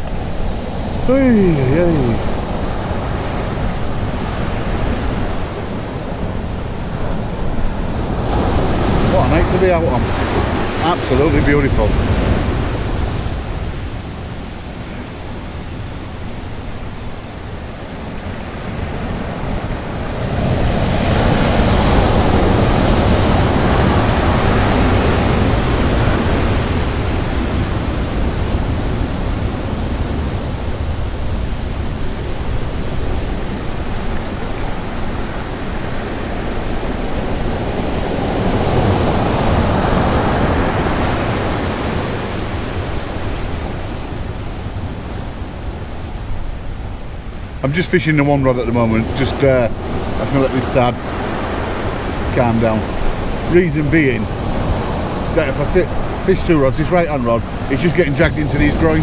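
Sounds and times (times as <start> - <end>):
surf breaking on beach: 0.0 - 59.0.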